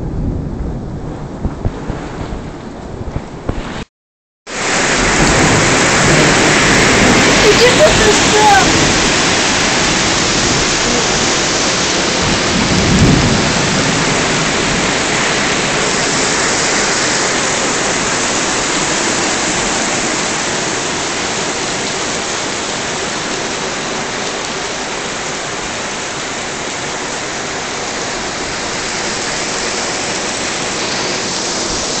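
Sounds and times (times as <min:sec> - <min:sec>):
low rumble: 0:00.0 - 0:03.6
heavy rain and hail pelting: 0:04.5 - 0:32.0.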